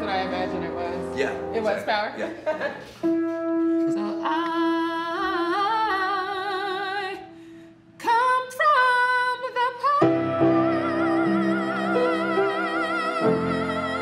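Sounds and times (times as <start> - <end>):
woman singing with vibrato: 3.9 - 7.4, 8.0 - 14.0.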